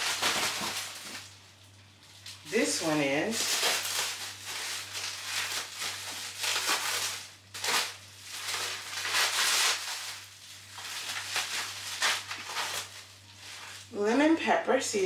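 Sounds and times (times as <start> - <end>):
plastic packaging crinkling: 0.0 - 14.2
knife cutting plastic: 2.6 - 13.0.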